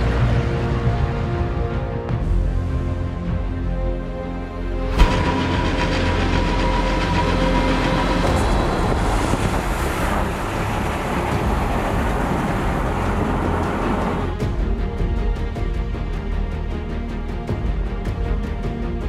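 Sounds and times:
truck diesel engine: 0:04.9 - 0:14.6.

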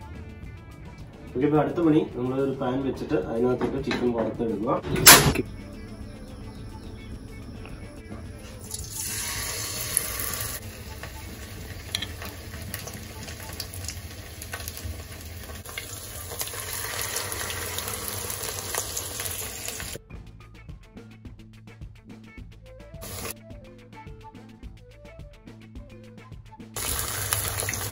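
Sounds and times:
oil frying with hiss and crackles: 0:08.6 - 0:20.0, 0:23.0 - 0:23.3, 0:26.8 - 0:27.9
oil pouring into a pan: 0:08.6 - 0:20.0, 0:26.8 - 0:27.9.

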